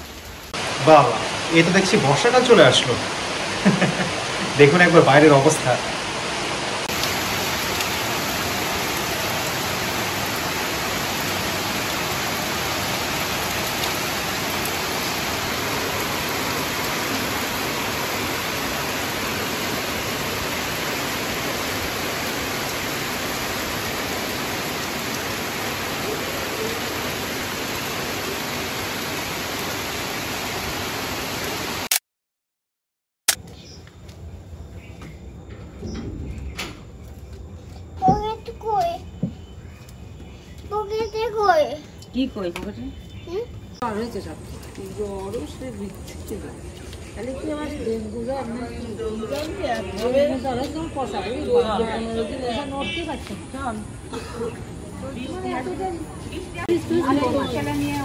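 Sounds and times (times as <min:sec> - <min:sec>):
heavy rain on trees and rooftops: 0:00.0 - 0:32.0, 0:34.8 - 0:58.0.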